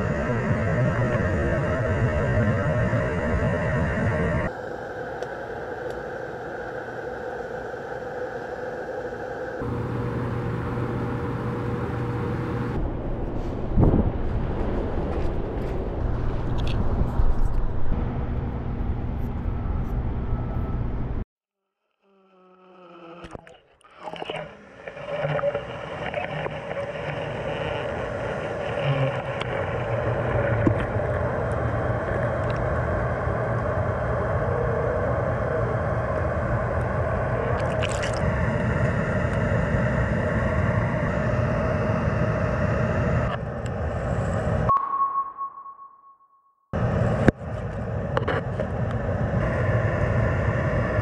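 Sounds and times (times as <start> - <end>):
underwater rumble: 6.2 - 21.0, 24.7 - 44.7
machine-like tones underwater: 23.8 - 46.2
water splashing: 37.6 - 38.2.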